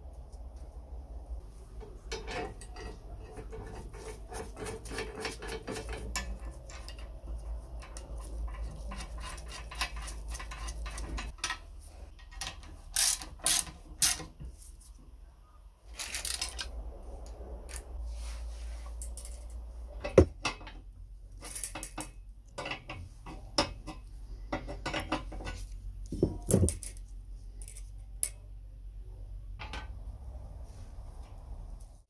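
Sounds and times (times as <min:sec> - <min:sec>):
metal parts clinking: 0:04.6 - 0:14.3, 0:15.9 - 0:16.7, 0:19.0 - 0:20.8, 0:21.4 - 0:24.1, 0:24.8 - 0:28.4.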